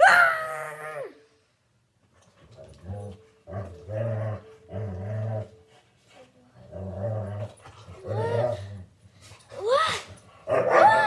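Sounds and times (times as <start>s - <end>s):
dog growling: 6.6s - 8.9s.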